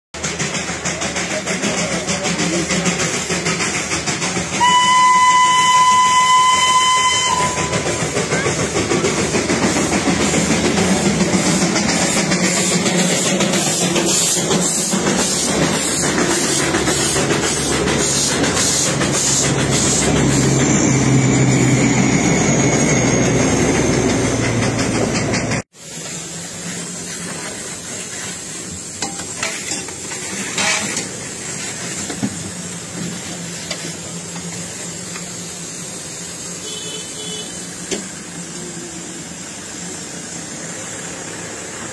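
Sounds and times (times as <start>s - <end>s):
rhythmic steam hiss: 0.2s - 41.9s
water and steam jetting: 0.2s - 41.9s
steam locomotive whistle: 4.5s - 8.6s, 36.5s - 37.8s.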